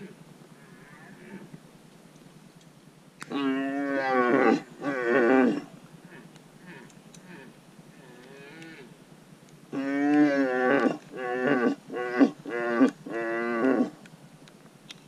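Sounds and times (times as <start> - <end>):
deer stag roaring: 3.3 - 9.0, 9.7 - 14.0.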